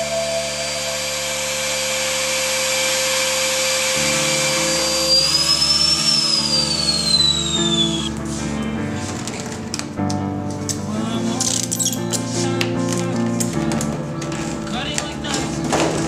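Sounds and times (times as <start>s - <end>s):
vacuum motor hissing and whining: 0.0s - 8.2s.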